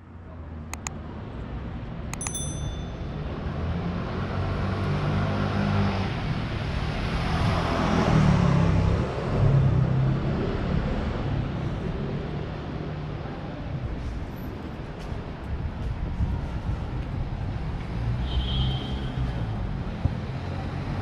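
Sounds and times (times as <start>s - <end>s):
traffic hum: 0.0s - 21.0s
click: 0.7s - 1.0s, 2.1s - 2.4s
short bell-like ding: 2.2s - 3.2s.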